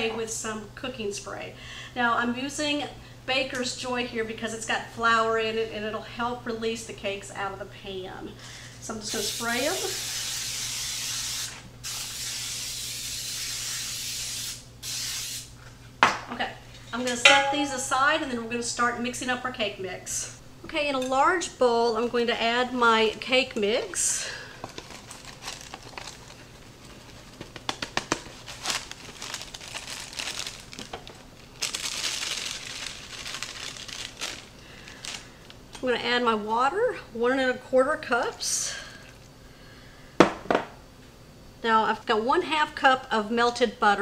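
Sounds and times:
aerosol spray hissing: 9.1s - 15.5s
plastic bag crinkling and rustling: 24.2s - 35.6s.

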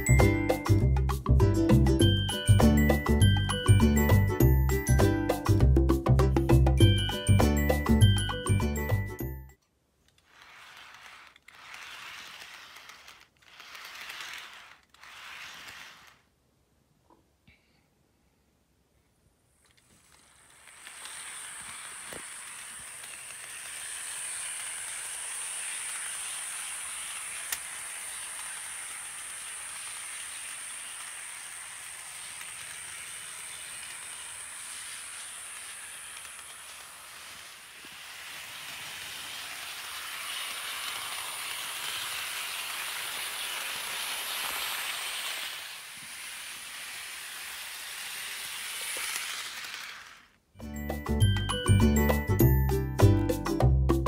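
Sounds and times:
model train motor whining: 10.1s - 16.3s, 19.7s - 50.5s
wheels hissing on rail: 10.2s - 16.2s, 19.9s - 50.4s.

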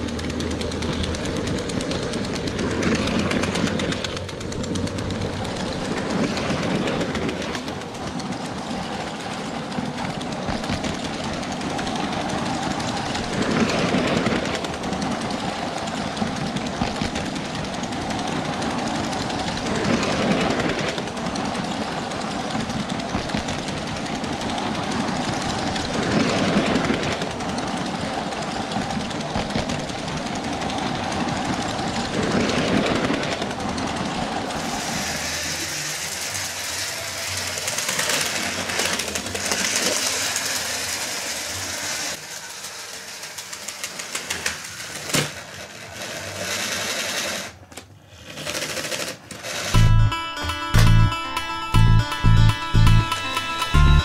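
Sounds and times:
toy train wheels clattering: 0.0s - 54.0s
toy train motor whirring: 34.4s - 49.8s.

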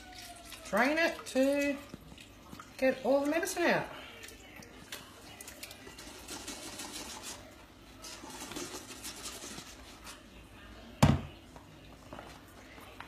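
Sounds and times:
oil trickling through filter: 0.0s - 10.2s.

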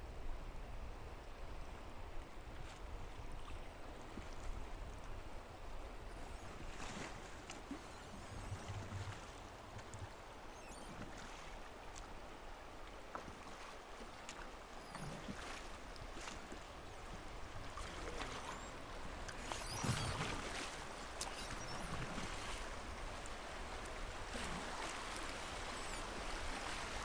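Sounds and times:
river water lapping against raft: 2.2s - 27.0s
small splashes: 12.8s - 27.0s.

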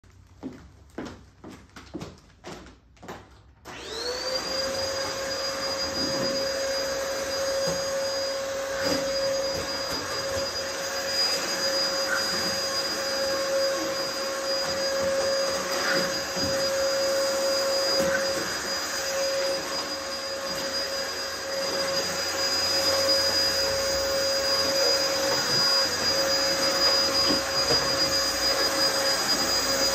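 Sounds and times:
footsteps on wooden floor: 0.1s - 3.5s, 7.4s - 19.6s
vacuum cleaner motor whine: 3.6s - 29.9s.

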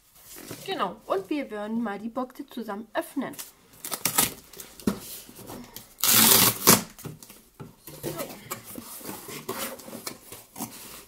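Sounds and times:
cardboard tearing with a crack: 3.8s - 4.4s, 6.0s - 7.0s.

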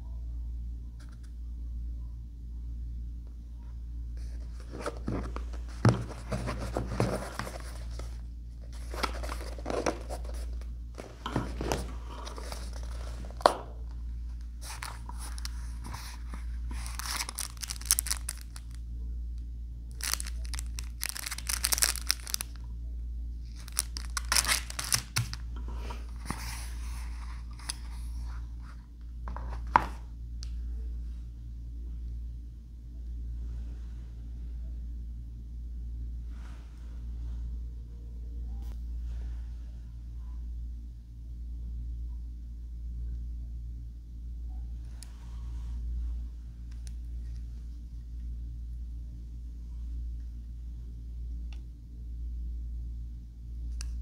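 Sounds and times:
steady low hum: 0.0s - 54.0s
plastic sleeve crinkling: 4.2s - 18.8s, 19.9s - 22.6s, 23.5s - 27.9s
cases handled and clicking: 8.8s - 13.7s, 23.6s - 25.4s.

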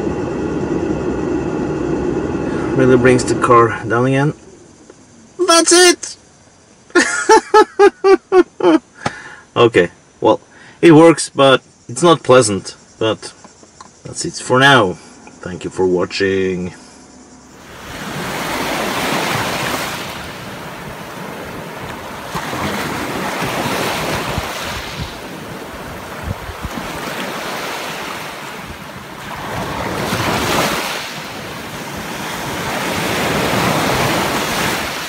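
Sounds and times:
small waves breaking on shore: 17.6s - 35.0s.

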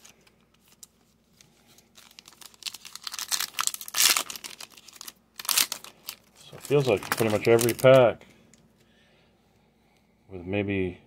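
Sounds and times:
foil wrapper crinkling and tearing: 0.0s - 8.1s.

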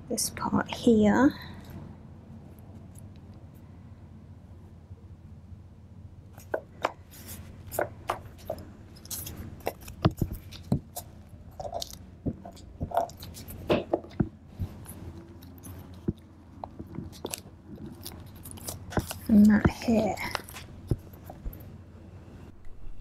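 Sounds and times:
faint low hum: 0.0s - 23.0s
paper crinkling and tapping: 6.4s - 21.6s.

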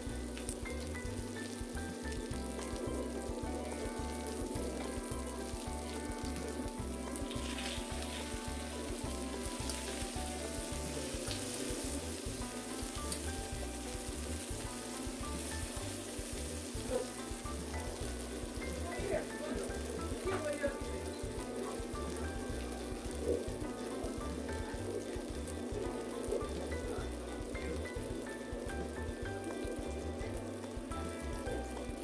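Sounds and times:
background music with steady beat: 0.0s - 32.0s
meat sizzling on a griddle: 0.0s - 32.0s.

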